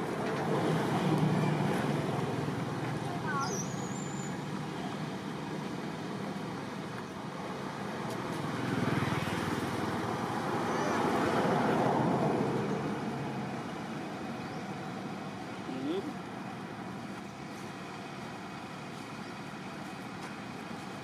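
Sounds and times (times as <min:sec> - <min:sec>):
road traffic: 0:00.0 - 0:21.0.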